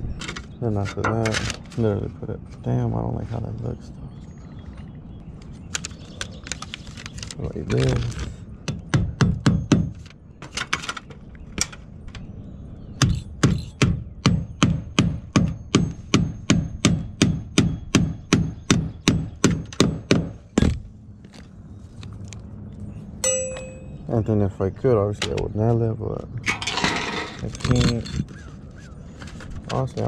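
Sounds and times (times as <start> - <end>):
roofing hammer strikes: 8.6 - 10.6, 13.0 - 20.8.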